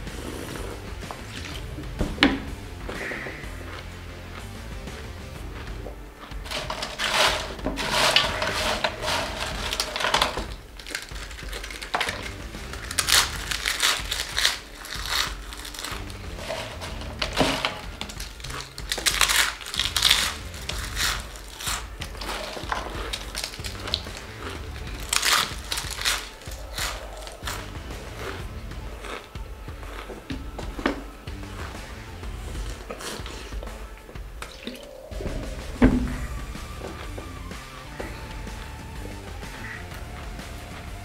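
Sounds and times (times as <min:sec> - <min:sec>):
chips crinkling on metal tray: 0:06.3 - 0:27.9
chips being crunched: 0:06.3 - 0:31.1.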